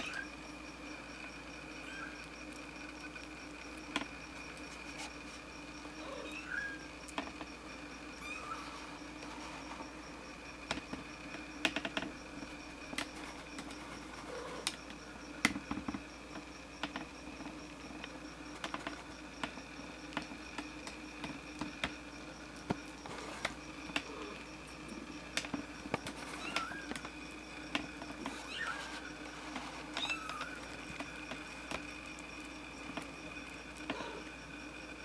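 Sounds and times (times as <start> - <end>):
kittens mewing: 1.8 - 2.2, 5.9 - 6.9, 8.2 - 9.0, 26.2 - 27.1, 28.3 - 31.0, 33.8 - 34.3
small clicks and taps: 2.2 - 4.9, 7.0 - 7.6, 10.6 - 13.9, 14.6 - 22.0, 25.3 - 34.1.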